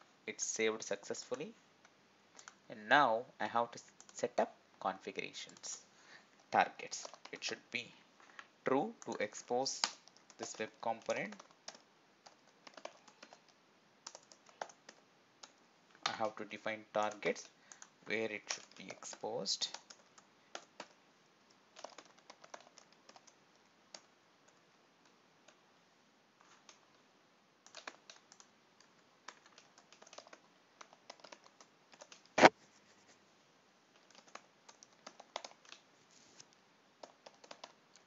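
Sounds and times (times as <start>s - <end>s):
typing on computer keyboard: 6.8s - 7.5s, 9.0s - 16.3s, 17.0s - 21.0s, 21.8s - 24.6s, 27.6s - 32.5s, 33.9s - 35.8s, 37.0s - 38.0s.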